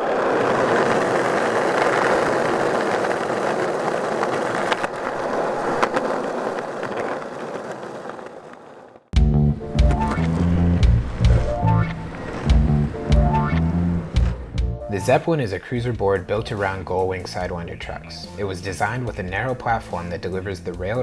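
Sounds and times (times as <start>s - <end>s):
skateboard wheels rolling on asphalt: 0.0s - 21.0s.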